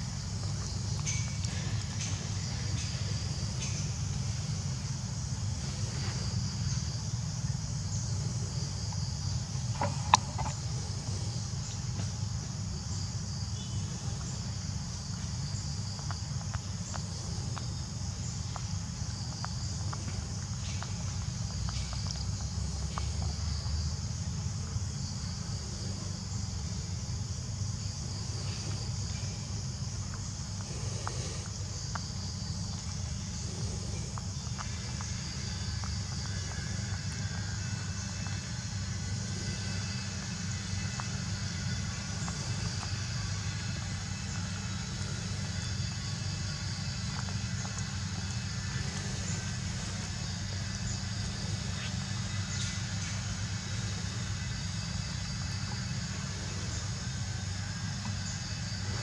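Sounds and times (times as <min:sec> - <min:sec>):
insects buzzing: 0:00.0 - 0:59.0
faint ticks: 0:15.9 - 0:23.8.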